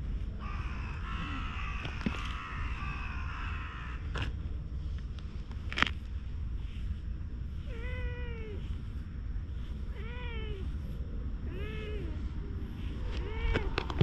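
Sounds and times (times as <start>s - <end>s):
cat meowing: 7.7s - 8.6s, 9.9s - 10.7s, 11.5s - 12.2s, 13.1s - 13.9s.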